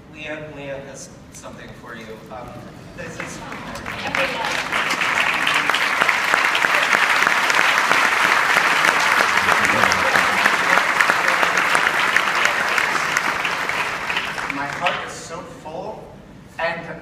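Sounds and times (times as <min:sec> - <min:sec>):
loud audience applause: 0:03.2 - 0:15.1.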